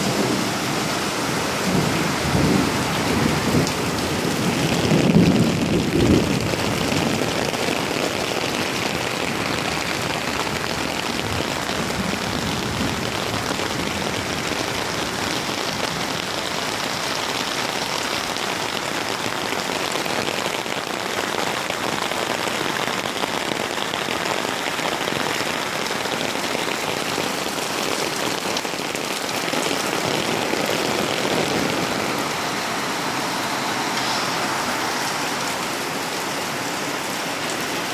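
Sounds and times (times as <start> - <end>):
thunder rumble: 0.0 - 16.8
heavy rain pouring: 0.0 - 37.9.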